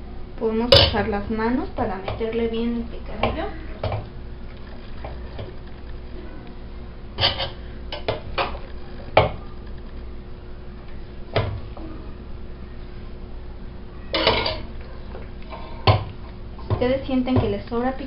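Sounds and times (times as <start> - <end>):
metal spoon clinking against pots: 14.2 - 14.7.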